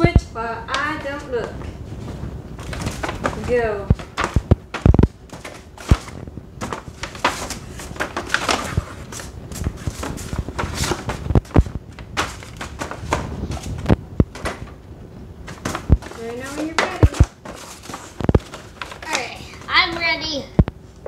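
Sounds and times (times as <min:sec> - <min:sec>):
rustling: 0:00.7 - 0:20.1.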